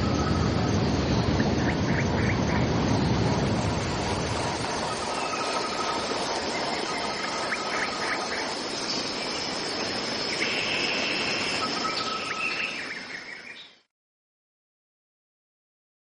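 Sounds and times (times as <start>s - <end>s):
high insect drone: 0.0s - 13.7s
bird calls and chirps: 4.8s - 13.9s.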